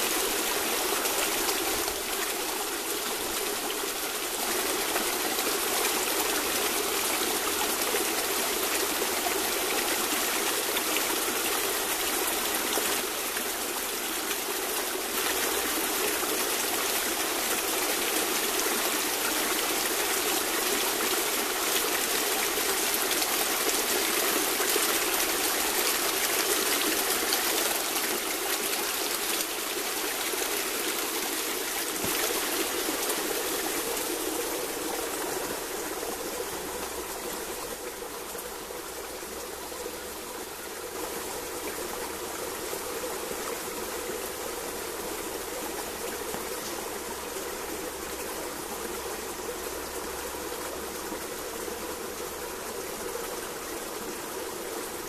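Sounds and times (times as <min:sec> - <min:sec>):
brook splashing over stones: 0:00.0 - 0:43.4.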